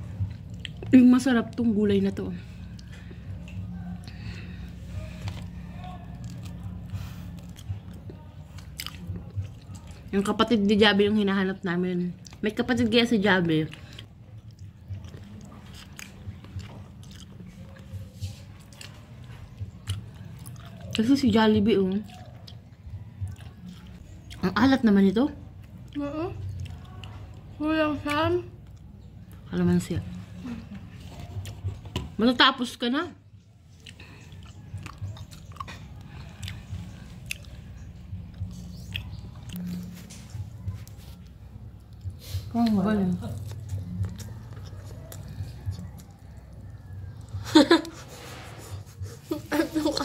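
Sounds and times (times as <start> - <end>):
person chewing food: 0.0 - 10.4, 12.1 - 24.5, 25.4 - 29.5, 30.2 - 32.1, 33.4 - 50.0
wet mouth clicks and smacks: 33.7 - 39.7.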